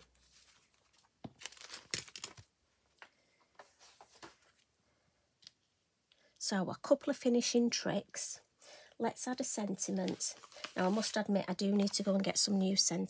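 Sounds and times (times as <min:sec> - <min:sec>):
paper and card rustling: 0:00.0 - 0:02.5, 0:09.8 - 0:12.4.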